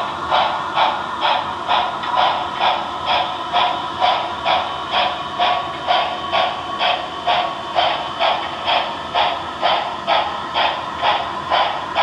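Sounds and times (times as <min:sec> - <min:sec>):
steam exhaust chuffs: 0:00.0 - 0:12.0.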